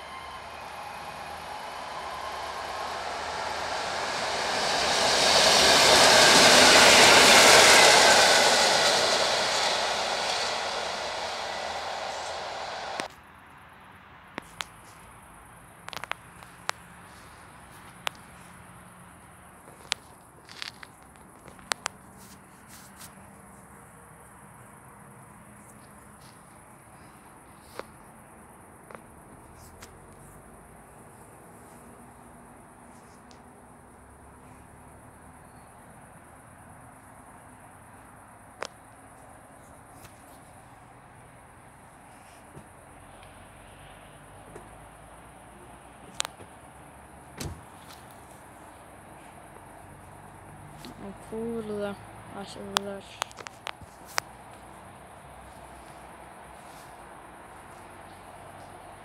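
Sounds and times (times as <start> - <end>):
train wheels rushing on rails: 0.0 - 13.1
crickets chirring: 24.0 - 59.0.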